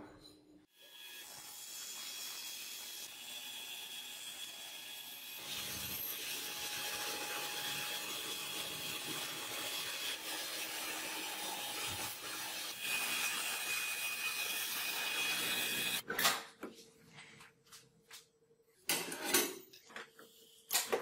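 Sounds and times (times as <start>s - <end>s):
belt grinder grinding steel: 0.8s - 16.0s.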